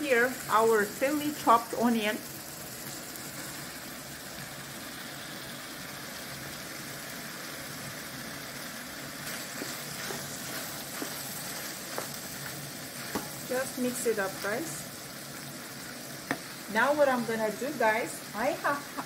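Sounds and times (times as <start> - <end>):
meat sizzling in a frying pan: 0.0 - 19.0
wooden spoon scraping a pan: 9.2 - 13.5.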